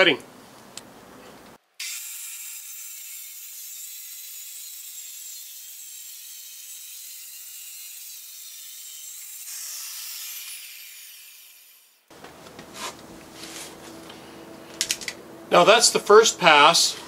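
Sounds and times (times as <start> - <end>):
circular saw cutting wood: 1.8 - 12.1.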